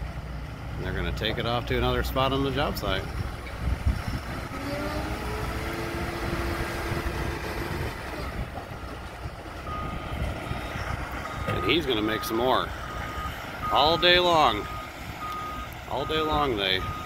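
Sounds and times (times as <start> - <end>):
diesel engine running: 0.0 - 17.0
reversing alarm beeping: 9.6 - 17.0.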